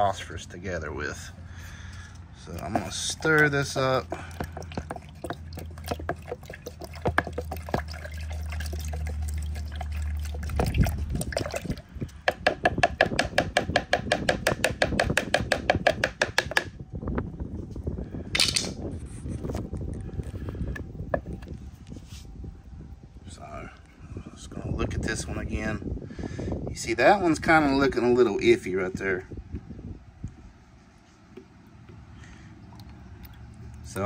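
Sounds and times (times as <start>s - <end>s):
steady low hum: 0.0s - 26.7s
liquid sloshing: 1.8s - 12.4s, 31.9s - 34.0s.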